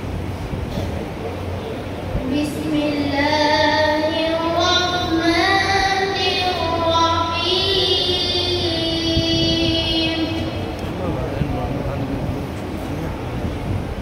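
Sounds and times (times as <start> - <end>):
steady low hum: 0.0 - 14.0
boy chanting into a microphone: 2.2 - 10.8.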